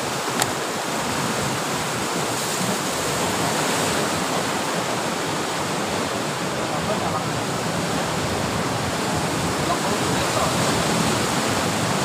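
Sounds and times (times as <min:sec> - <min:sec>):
ocean surf breaking on rocks: 0:00.0 - 0:12.0
sharp click: 0:00.4 - 0:00.6.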